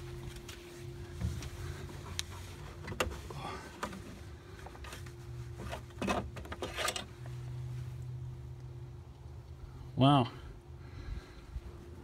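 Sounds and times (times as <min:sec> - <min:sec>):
steady low hum: 0:00.0 - 0:12.0
handling clicks and scrapes: 0:00.3 - 0:07.4.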